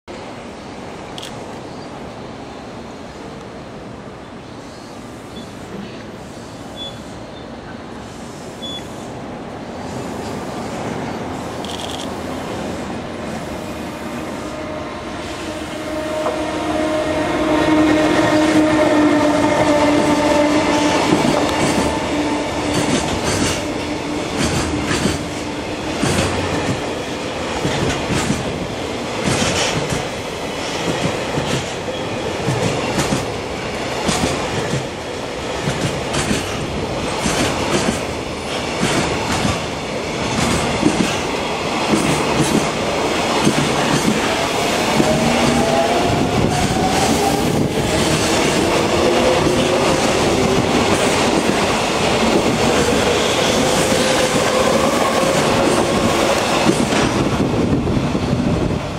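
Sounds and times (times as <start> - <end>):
electric locomotive whine: 0.2 - 58.9
train wheels clacking over rail joints: 19.5 - 57.5.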